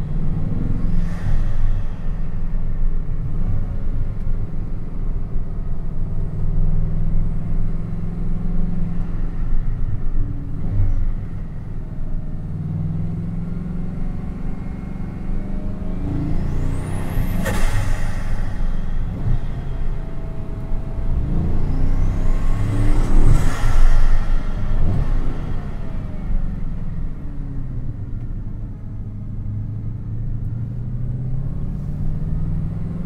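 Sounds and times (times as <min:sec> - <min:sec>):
car engine droning in cabin: 0:00.0 - 0:33.0
sharp burst of noise: 0:16.3 - 0:26.6.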